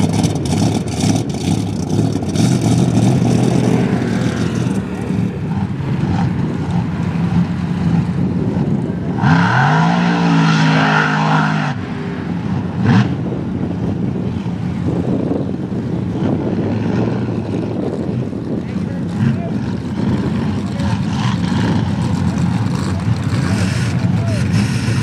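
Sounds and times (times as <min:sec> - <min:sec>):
engine drone: 0:00.0 - 0:25.0
engine revving hard: 0:09.2 - 0:11.8.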